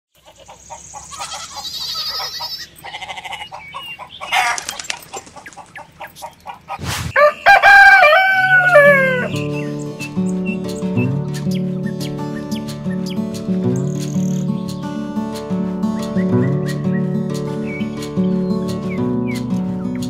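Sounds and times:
small birds chirping: 0.1s - 20.0s
chickens clucking: 0.2s - 20.0s
rooster crowing: 7.1s - 9.4s.

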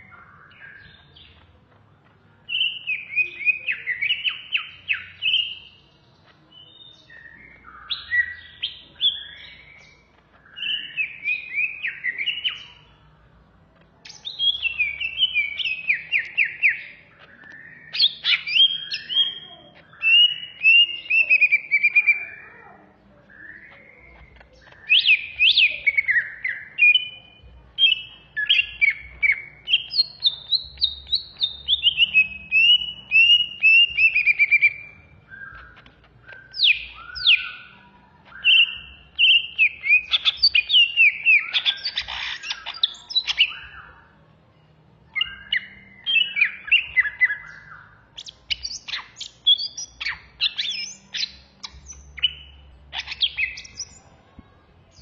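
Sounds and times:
bird singing whistles and chatter: 0.0s - 1.7s, 2.4s - 13.2s, 14.0s - 44.2s, 45.1s - 54.2s.

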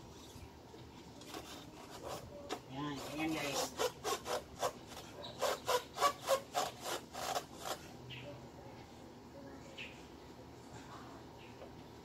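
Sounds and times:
hand tool rasping strokes: 1.2s - 7.9s.

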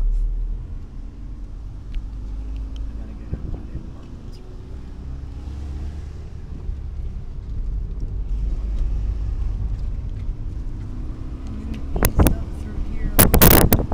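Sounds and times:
car engine and road rumble: 0.0s - 13.9s.

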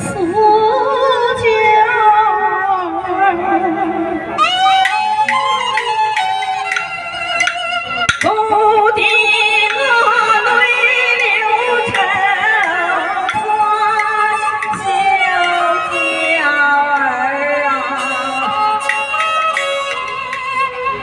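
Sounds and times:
woman singing opera with vibrato: 0.0s - 4.3s, 8.2s - 18.5s
bowed fiddles: 4.3s - 8.3s, 17.7s - 21.0s
sharp clack: 4.4s - 8.4s, 18.8s - 20.9s
percussion: 4.4s - 21.0s.

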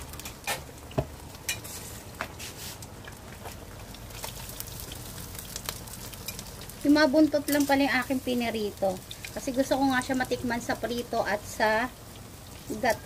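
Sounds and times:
fish sizzling in oil: 0.0s - 13.0s
oil popping and crackling: 0.0s - 13.0s.

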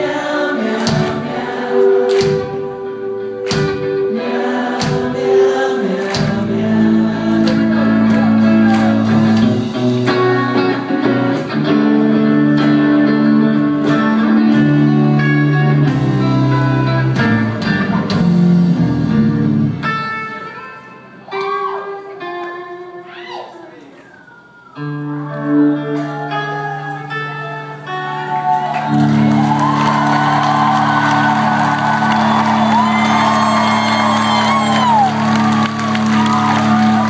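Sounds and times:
person singing: 0.0s - 16.9s
live rock band: 0.0s - 23.1s, 24.2s - 37.0s.

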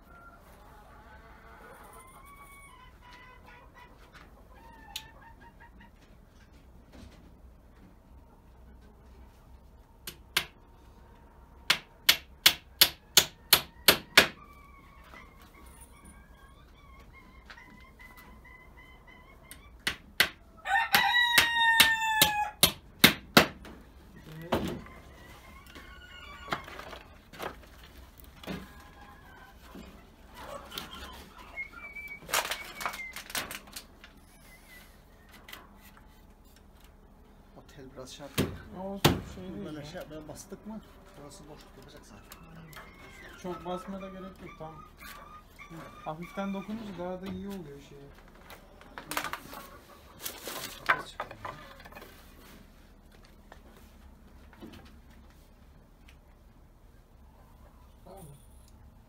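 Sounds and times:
chicken calling: 0.0s - 6.5s, 12.6s - 22.6s, 24.1s - 35.8s, 38.8s - 52.6s
knocks of wooden frames: 11.7s - 14.4s, 19.8s - 23.8s.

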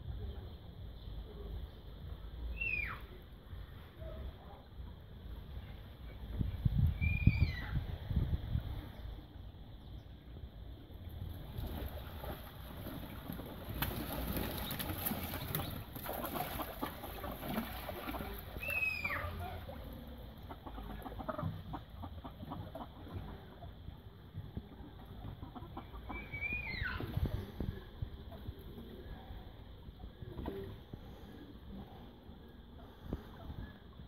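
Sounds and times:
falling whistle-like bird call: 2.5s - 3.1s, 7.0s - 7.8s, 26.2s - 27.1s
ducks and fowl clucking and quacking: 11.5s - 27.2s.

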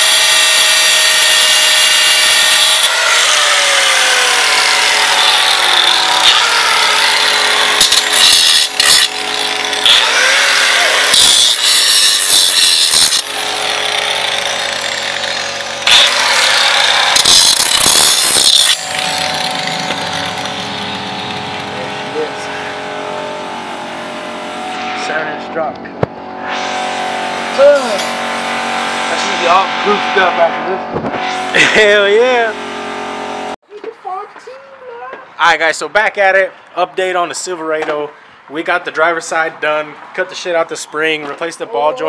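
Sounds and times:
angle grinder grinding metal: 0.0s - 25.5s, 26.2s - 33.6s.

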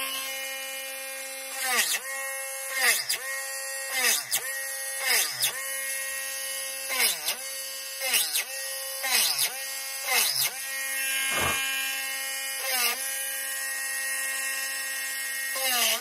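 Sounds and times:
rotary tool whining: 11.1s - 11.8s.

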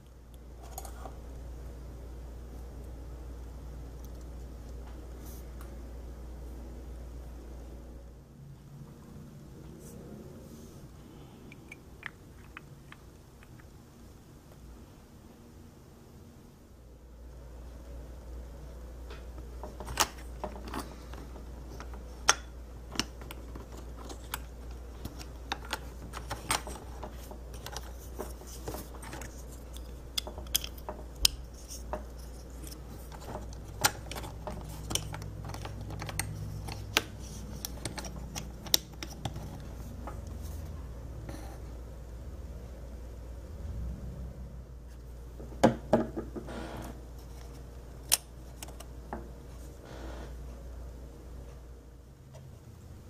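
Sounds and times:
steady low hum: 0.0s - 53.0s
plastic parts clicking: 19.6s - 39.7s.

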